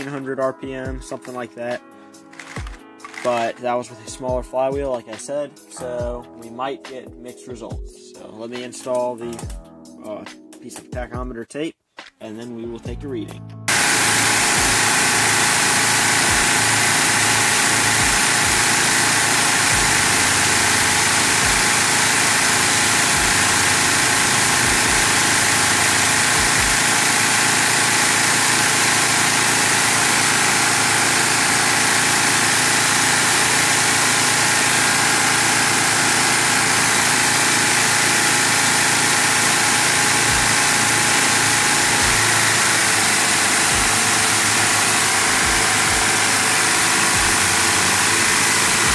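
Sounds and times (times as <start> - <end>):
model engine pistons clattering: 13.8 - 48.9.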